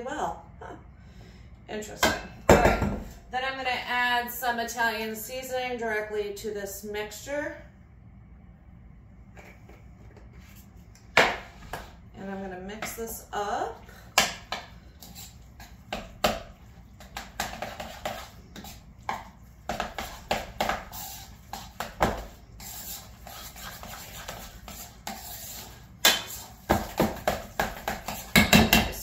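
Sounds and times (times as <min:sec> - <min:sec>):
spoon stirring and scraping a bowl: 0:11.4 - 0:29.0.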